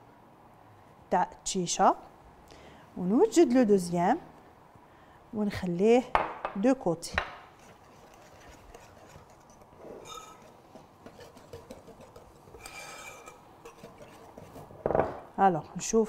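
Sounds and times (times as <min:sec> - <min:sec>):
whisk scraping in bowl: 0:07.5 - 0:14.8.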